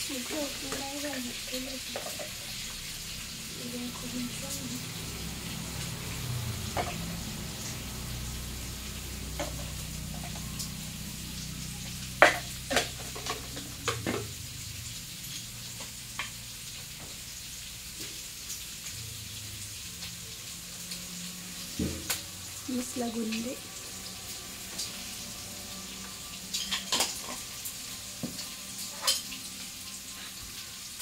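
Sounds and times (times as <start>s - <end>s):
potatoes sizzling in oil: 0.0s - 31.0s.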